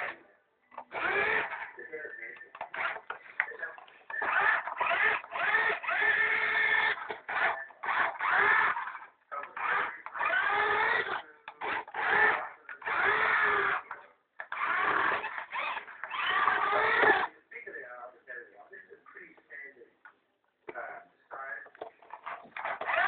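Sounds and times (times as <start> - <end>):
toy car electric motor whining: 0.8 - 1.8, 2.5 - 17.3, 22.0 - 23.0.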